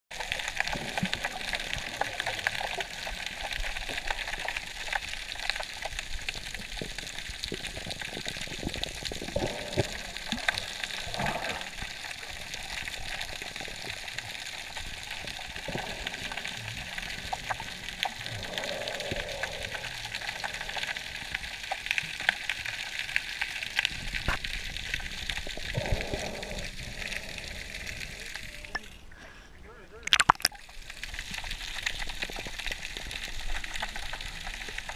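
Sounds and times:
underwater crackles and clicks: 0.1 - 29.1, 30.0 - 34.9
underwater fizzing hiss: 7.5 - 21.2.

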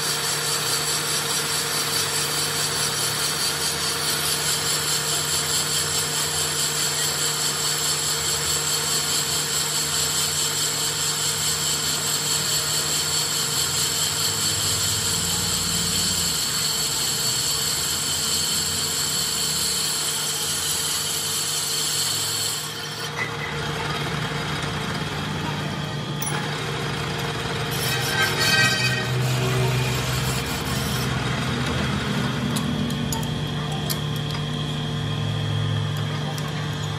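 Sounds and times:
lathe hum: 0.0 - 36.9
lathe machining whine: 0.0 - 36.9.

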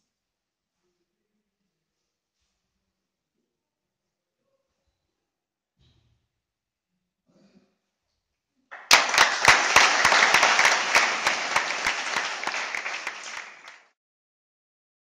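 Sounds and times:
audience applauding: 8.7 - 13.9.

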